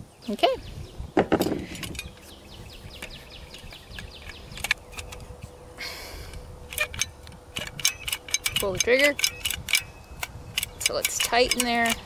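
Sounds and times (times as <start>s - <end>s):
wildlife chirping: 2.0s - 12.0s
caulking gun clicks: 6.7s - 12.0s.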